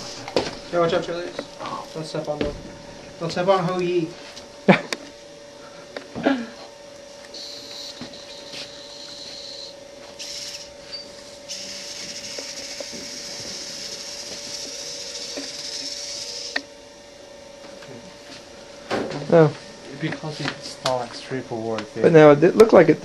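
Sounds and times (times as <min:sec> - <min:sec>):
robot drive motors whining: 0:00.0 - 0:04.1, 0:07.3 - 0:16.7.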